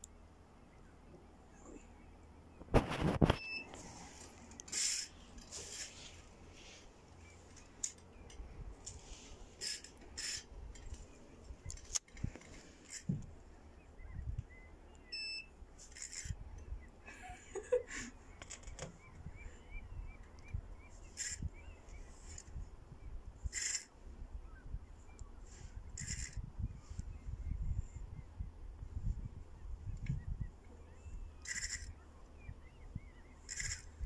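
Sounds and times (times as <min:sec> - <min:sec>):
fishing reel knocks and rustles: 0:04.6 - 0:06.1, 0:09.6 - 0:11.0.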